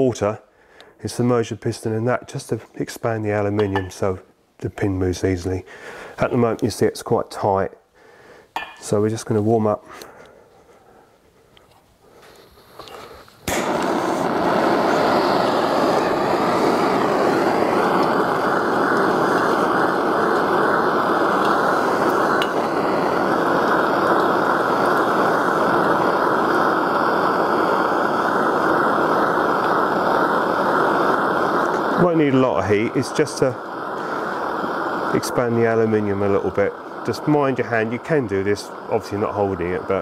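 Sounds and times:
blowtorch flame hissing: 12.0 - 40.0.

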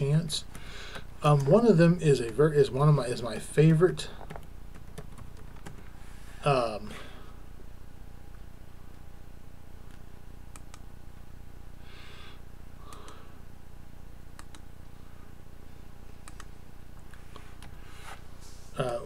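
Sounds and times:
steady low hum: 0.0 - 19.0
computer mouse clicks: 9.9 - 10.8, 12.9 - 13.2, 14.4 - 14.7, 16.2 - 17.8.

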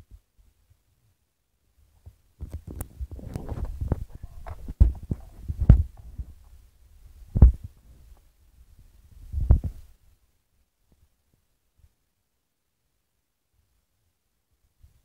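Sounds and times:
rustling: 2.0 - 10.2
dull handling thumps: 2.5 - 6.5.

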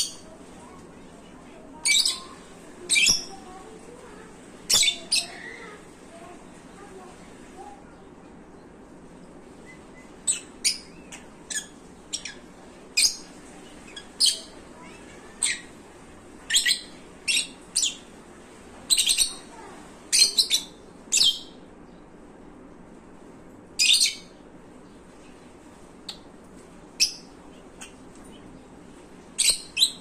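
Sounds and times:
lovebirds chirping: 0.0 - 8.7, 9.5 - 15.8.

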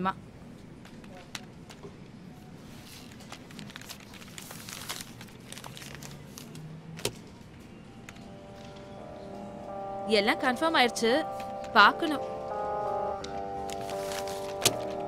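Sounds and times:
paper rustling: 2.6 - 6.6, 13.6 - 15.0.

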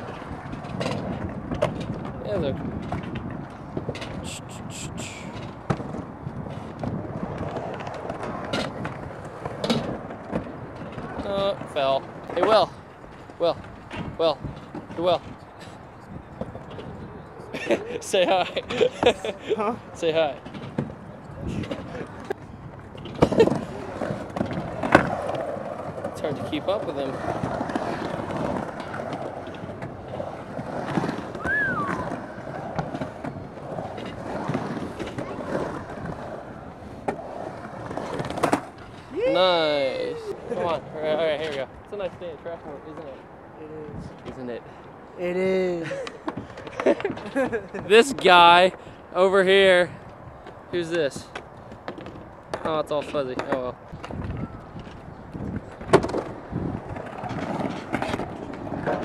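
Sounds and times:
skateboard clicks and knocks: 0.0 - 4.3, 5.1 - 39.8, 45.9 - 48.8, 51.2 - 59.0
wheels rolling on concrete: 0.0 - 59.0
wind buffeting microphone: 0.0 - 59.0
skateboard wheel squeak: 28.8 - 39.1.

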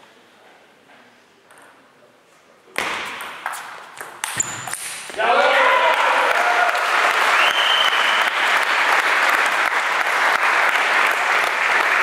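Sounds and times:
spectators applauding: 5.5 - 12.0.

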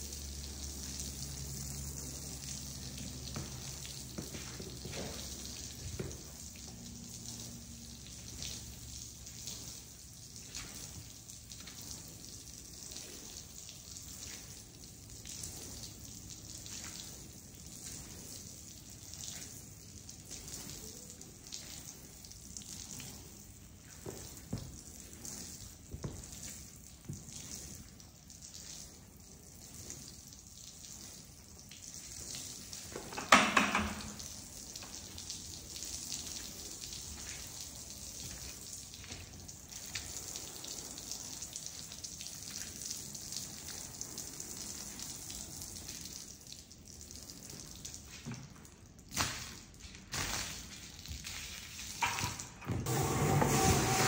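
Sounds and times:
water splashing on rug: 0.0 - 54.0.

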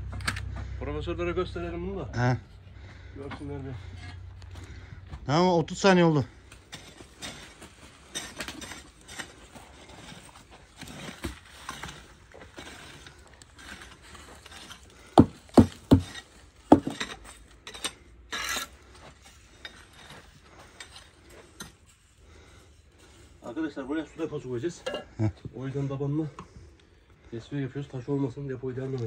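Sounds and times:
trowels and bricks tapping: 6.5 - 21.9
trowel scrape: 6.5 - 23.5
sharp knocks: 15.2 - 17.0.

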